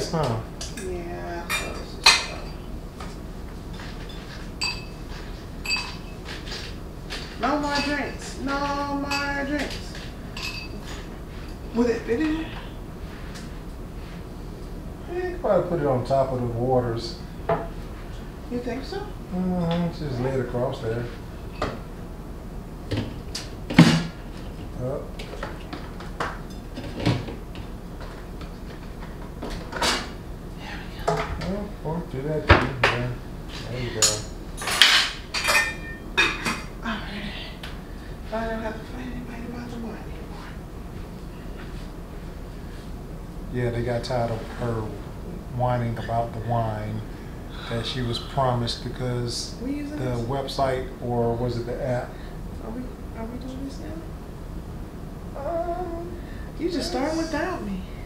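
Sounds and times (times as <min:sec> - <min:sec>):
glass clinks: 0:04.1 - 0:05.0, 0:05.6 - 0:06.2, 0:10.4 - 0:10.8.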